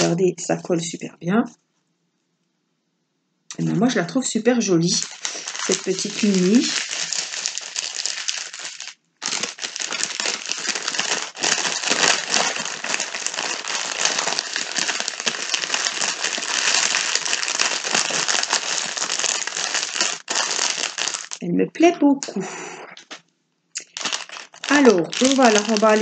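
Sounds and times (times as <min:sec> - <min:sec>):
plastic film crinkling: 0:04.7 - 0:22.0, 0:23.8 - 0:26.0.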